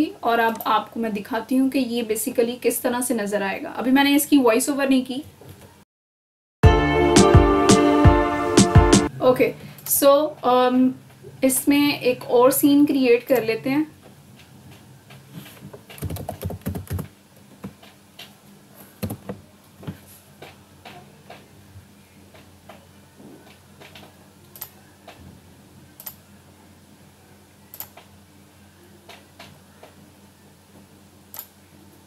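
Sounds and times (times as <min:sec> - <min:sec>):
keyboard typing: 0:14.4 - 0:18.3, 0:18.9 - 0:19.4.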